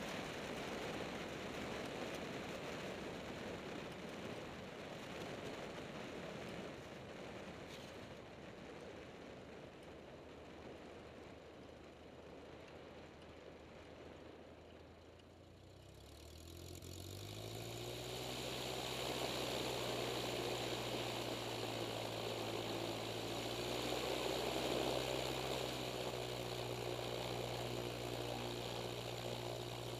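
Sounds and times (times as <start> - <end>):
light aircraft piston engine: 0.0 - 29.9
propeller and wind noise: 0.0 - 29.9.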